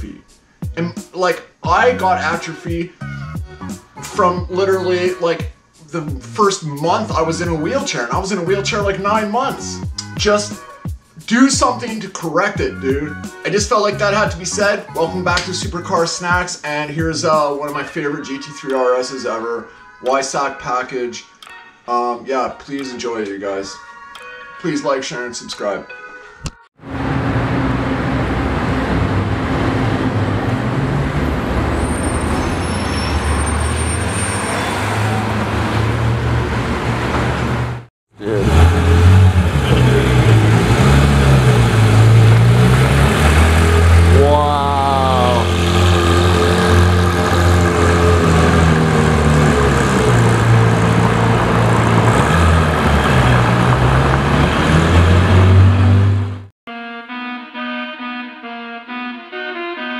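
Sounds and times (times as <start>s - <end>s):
cars rolling past: 26.8s - 56.5s
tyre and road noise: 26.8s - 56.5s.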